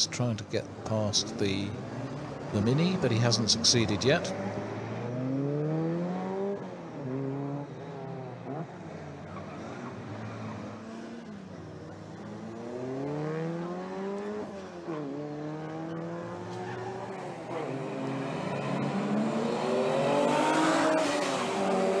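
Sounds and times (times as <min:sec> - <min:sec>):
racing car engines at full throttle: 0:00.0 - 0:22.0.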